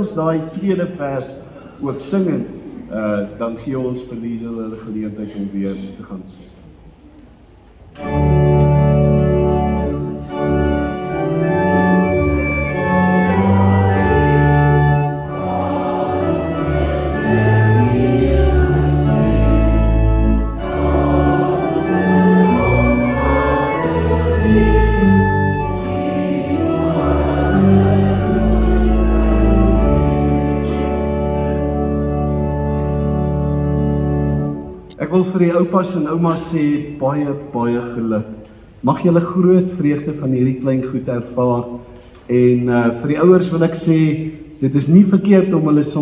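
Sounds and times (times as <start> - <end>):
church organ playing: 7.9 - 38.2
congregation singing: 8.0 - 34.6.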